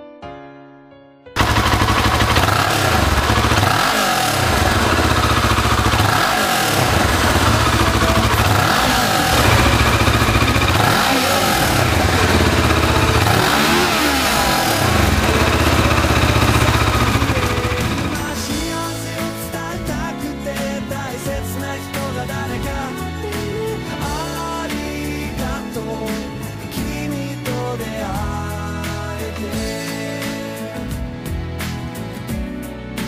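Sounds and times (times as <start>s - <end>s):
motorcycle engine revving: 1.4s - 19.5s.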